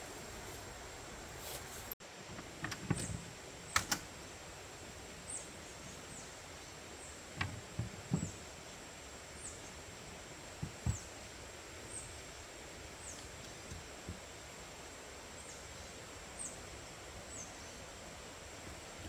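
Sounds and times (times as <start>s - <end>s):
sharp clicks of gear: 3.7s - 4.1s
soft knocks and thumps: 7.4s - 8.4s, 10.6s - 11.1s
bird chirping: 17.3s - 17.9s.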